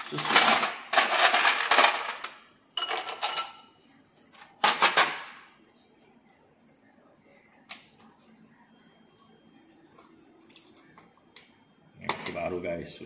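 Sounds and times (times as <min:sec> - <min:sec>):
plastic ice tray rattling: 0:00.0 - 0:02.3
ice cubes clattering: 0:00.0 - 0:03.4.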